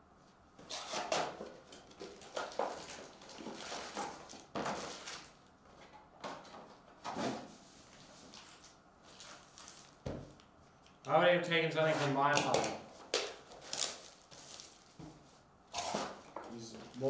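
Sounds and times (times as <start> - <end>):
foil packs crinkling: 1.8 - 5.4, 8.5 - 10.0, 12.5 - 15.0.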